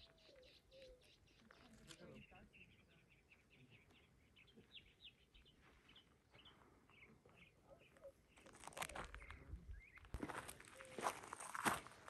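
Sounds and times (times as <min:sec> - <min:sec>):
footsteps on a trail: 0:08.4 - 0:12.0.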